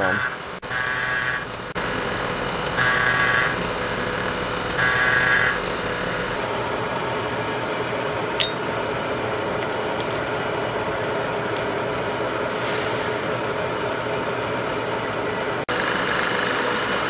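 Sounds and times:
steady machine hum: 0.0 - 12.4
sharp metal clinks: 8.4 - 8.7.

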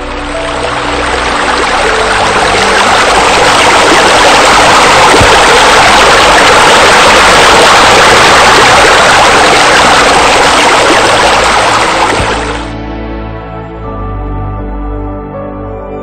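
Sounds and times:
loud steady rushing noise: 0.0 - 12.7
soft background music: 0.0 - 16.0.

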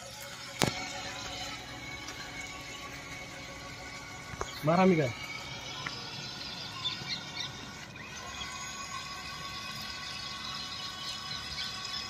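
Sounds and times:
toy car electric motors whine: 0.0 - 12.0.

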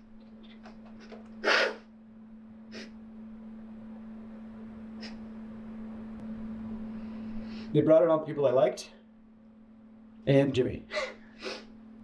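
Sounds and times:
steady low hum: 0.0 - 12.0
sharp sniffing breaths: 1.4 - 1.8, 11.3 - 11.7.

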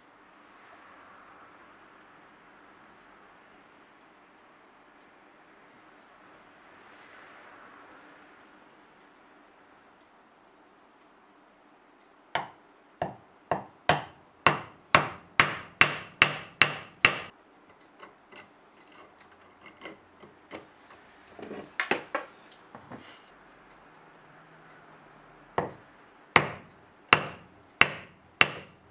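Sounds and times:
hammer striking a chisel: 12.4 - 17.3, 25.6 - 25.8, 26.4 - 28.8.

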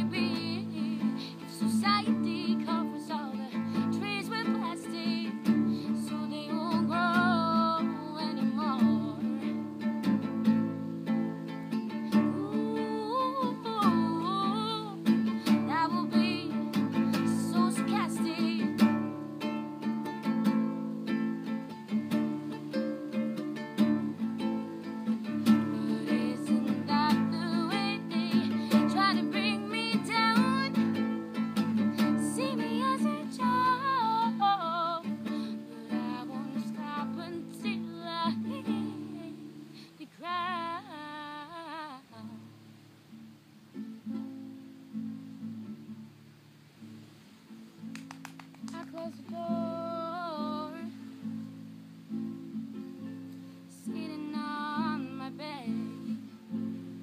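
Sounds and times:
woman singing with vibrato: 0.0 - 10.1, 12.1 - 19.4, 23.8 - 42.6, 48.6 - 51.1, 53.7 - 56.2
acoustic guitar strumming: 0.0 - 57.0.

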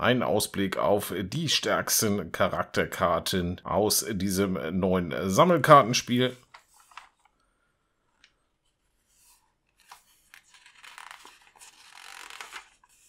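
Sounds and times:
magazine page rustling: 6.4 - 7.4, 8.2 - 13.0
paper clicks: 6.4 - 7.4, 9.7 - 13.0.

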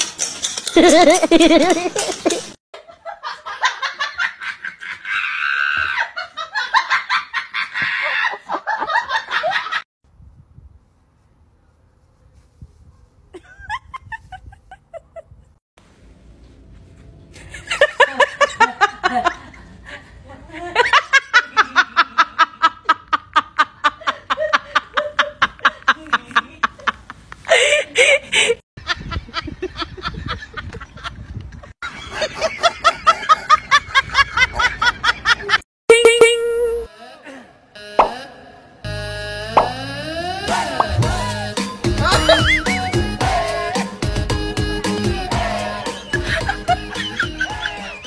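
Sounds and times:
person laughing hard: 0.8 - 2.5, 40.5 - 43.0, 45.9 - 48.0.

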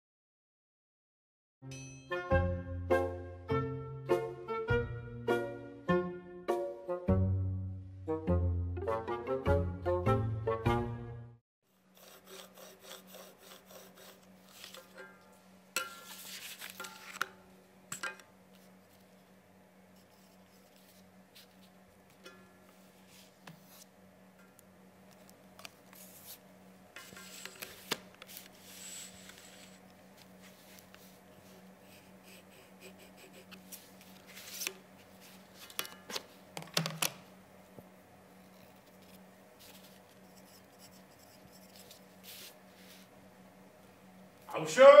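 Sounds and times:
pencil scratching on paper: 11.9 - 14.8, 39.6 - 42.6
paper sheets rustling: 14.4 - 15.0, 16.0 - 17.3, 27.0 - 31.6, 33.5 - 36.9.

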